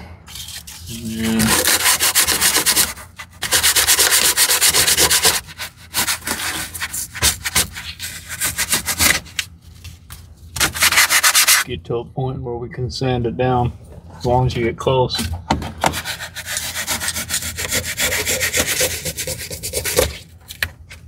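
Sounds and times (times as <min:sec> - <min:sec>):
cutting tool scraping foam: 0:00.4 - 0:09.4, 0:10.6 - 0:11.6, 0:15.8 - 0:20.3.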